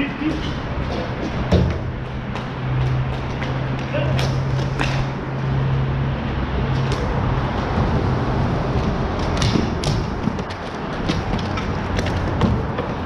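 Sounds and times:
steady noisy background: 0.0s - 13.0s
sticks and ball clacking on court: 9.2s - 13.0s.

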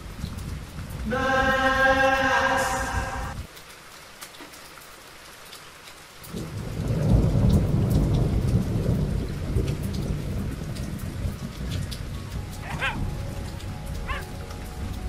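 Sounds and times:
ticking raindrops: 0.0s - 1.1s, 3.3s - 15.0s
rain falling: 0.0s - 15.0s
thunder rumbling: 6.3s - 15.0s.

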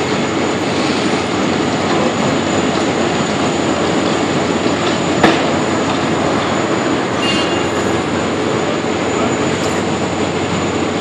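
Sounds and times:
heavy diesel engines running: 0.0s - 11.0s
road-milling machine grinding asphalt: 0.0s - 11.0s.

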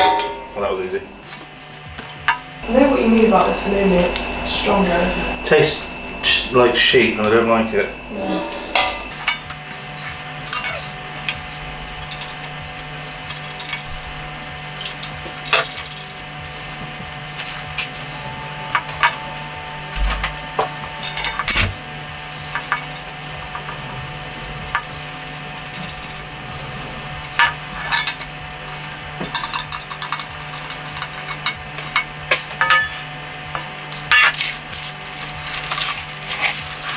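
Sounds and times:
steady low hum: 0.0s - 36.9s
metal barbecue parts clicking and scraping: 8.4s - 19.2s, 20.0s - 21.8s, 22.4s - 23.7s, 24.7s - 26.3s, 27.3s - 33.0s, 33.9s - 36.9s.

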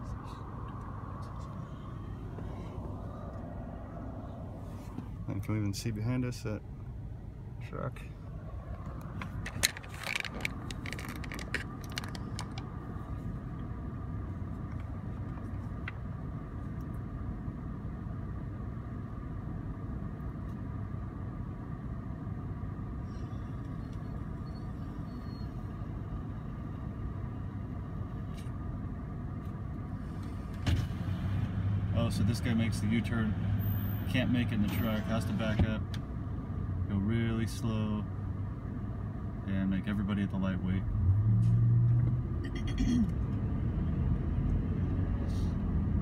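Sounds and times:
car engine idling: 0.0s - 30.6s.

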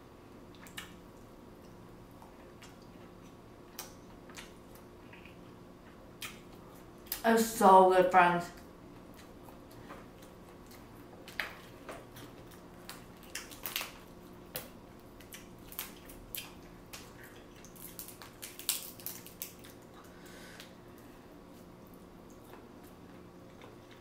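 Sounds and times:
wet squishes of chewing: 0.5s - 7.2s, 8.6s - 20.7s, 21.5s - 24.0s
shellfish shells cracking: 12.8s - 20.0s.

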